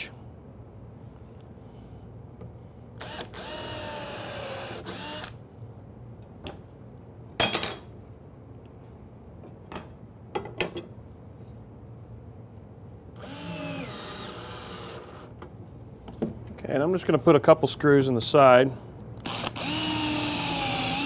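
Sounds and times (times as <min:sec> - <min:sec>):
cordless drill driving screw: 0:03.0 - 0:05.3, 0:13.2 - 0:15.2, 0:19.3 - 0:21.0.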